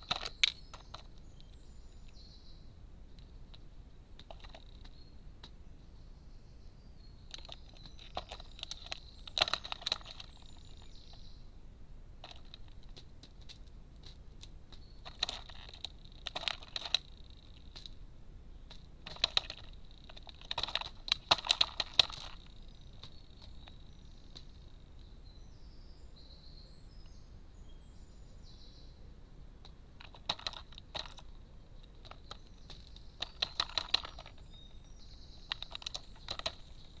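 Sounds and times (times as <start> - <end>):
crow beak tapping on nutshell: 0.0 - 2.2, 3.1 - 5.6, 7.3 - 11.3, 12.2 - 18.0, 18.6 - 25.1, 29.6 - 37.0.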